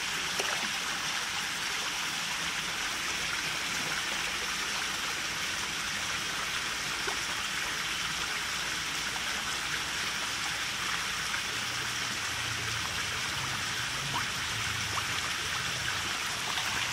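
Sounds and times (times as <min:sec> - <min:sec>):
running water: 0:00.0 - 0:16.9
fish splashing: 0:00.1 - 0:01.1, 0:12.0 - 0:16.9.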